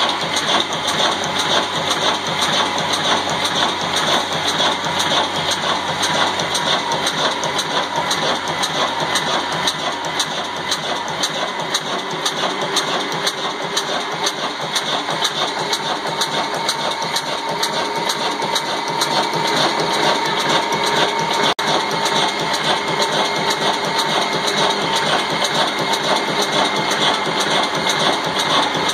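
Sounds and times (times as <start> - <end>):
diesel engine running with clicks: 0.0 - 28.9.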